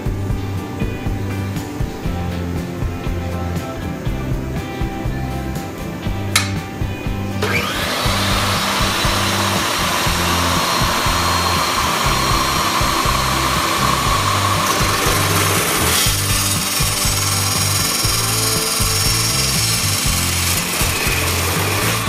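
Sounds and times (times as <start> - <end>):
background music with bass beat: 0.0 - 22.0
chop saw cutting steel tubing: 7.4 - 22.0.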